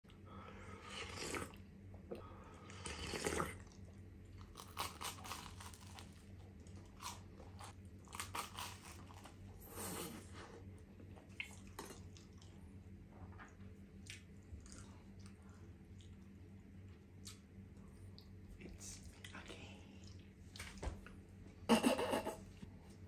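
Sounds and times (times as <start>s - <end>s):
slurping soup from a spoon: 0.8s - 1.6s, 2.7s - 3.8s
crunching bites into toast: 4.4s - 6.2s
chewing with wet mouth sounds: 11.0s - 21.2s.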